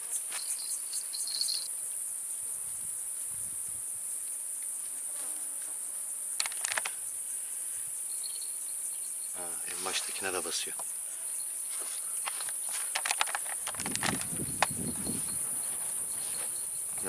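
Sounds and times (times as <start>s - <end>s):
high-pitched insect drone: 0.0s - 17.0s
short run of clicks: 6.4s - 7.0s.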